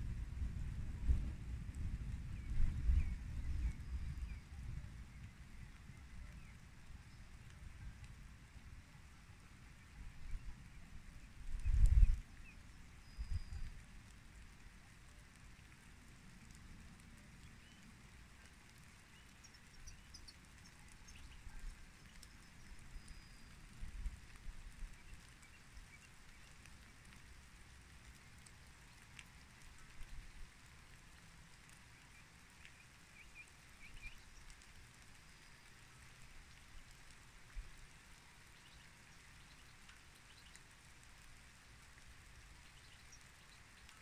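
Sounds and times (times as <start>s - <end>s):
low steady rumble: 0.0s - 25.6s
light rain: 0.0s - 44.0s
raindrops ticking: 0.1s - 44.0s.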